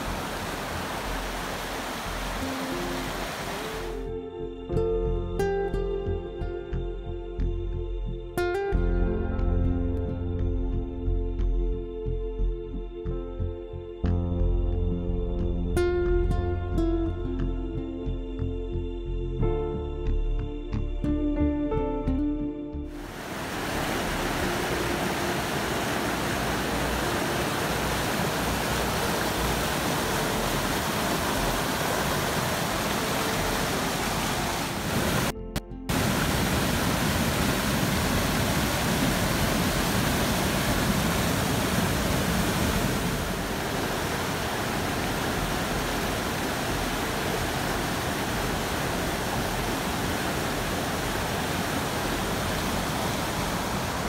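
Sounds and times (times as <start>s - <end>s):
creek roaring over rapids: 0.0s - 4.0s, 23.0s - 35.3s, 35.9s - 54.0s.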